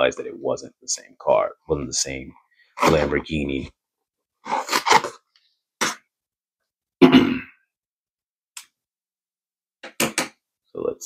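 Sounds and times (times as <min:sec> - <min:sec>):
cardboard tearing: 0:04.5 - 0:05.2.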